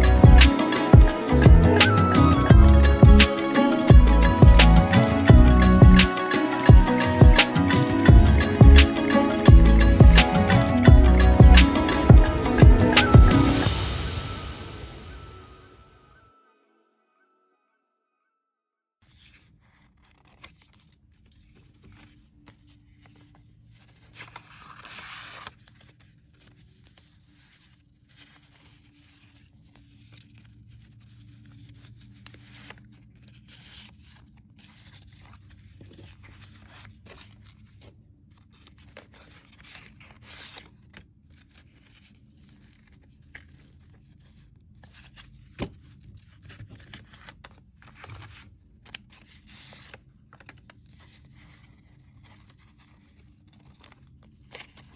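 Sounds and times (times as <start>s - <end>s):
paper and card rustling: 19.0s - 54.9s.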